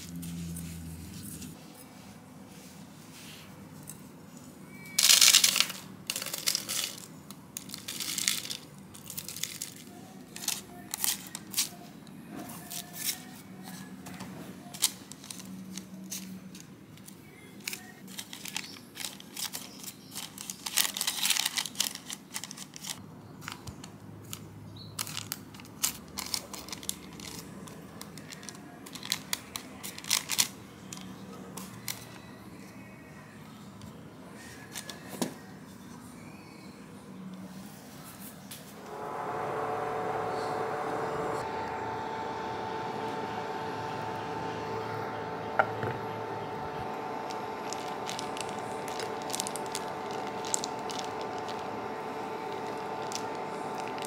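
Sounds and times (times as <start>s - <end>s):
baking paper rustling: 0.0s - 32.8s, 45.6s - 54.0s.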